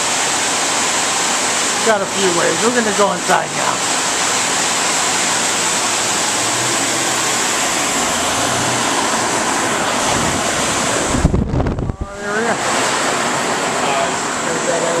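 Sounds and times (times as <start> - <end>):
loud rushing noise: 0.8 - 15.0
low thumps: 10.1 - 12.2.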